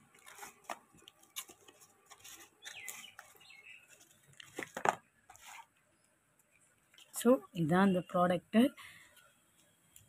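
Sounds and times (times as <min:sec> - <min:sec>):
packing tape peeling and crinkling: 0:00.1 - 0:05.7.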